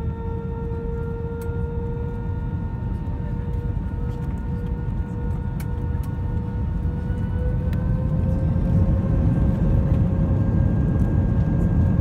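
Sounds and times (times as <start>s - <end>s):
jet engine whine: 0.0s - 12.0s
low cabin rumble: 0.0s - 12.0s.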